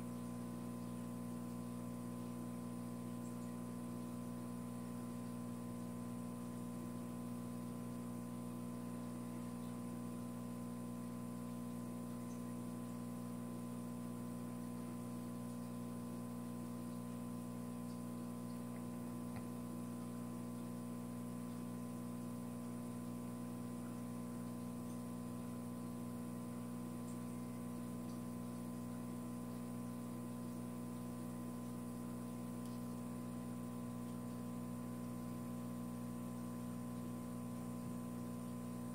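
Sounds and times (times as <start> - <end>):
low electrical hum: 0.0 - 38.9
faint ticks: 31.6 - 33.0.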